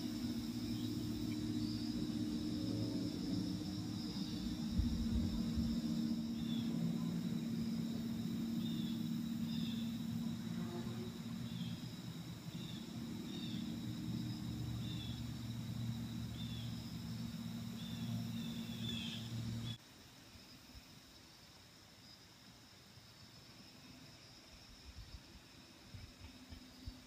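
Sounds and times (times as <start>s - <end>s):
low hum: 0.0s - 19.8s
insect drone: 0.0s - 27.0s
bird chirping: 4.0s - 10.2s, 11.4s - 19.8s.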